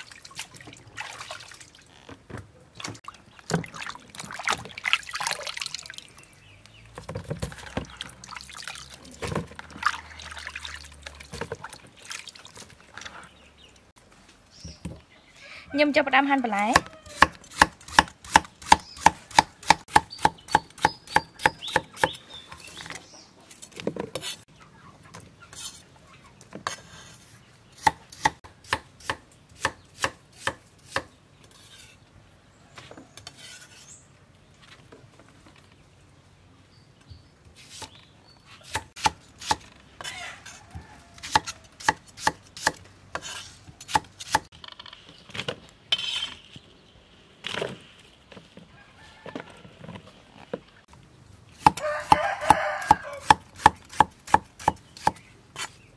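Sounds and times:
cleaver chopping carrots on wood: 16.7s - 22.2s, 51.6s - 55.3s.

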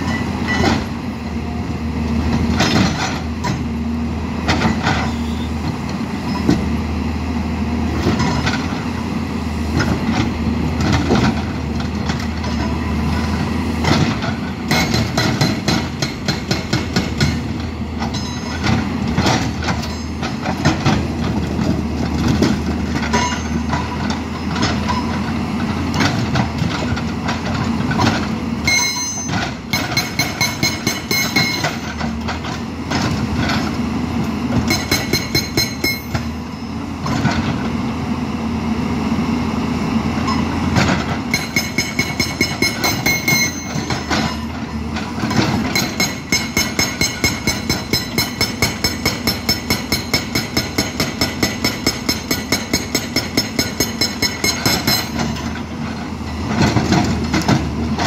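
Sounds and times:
diesel engine running: 0.0s - 58.0s
hydraulic breaker hammering rock: 13.8s - 21.2s, 28.0s - 32.4s, 34.6s - 36.4s, 41.1s - 44.5s, 45.1s - 55.5s.

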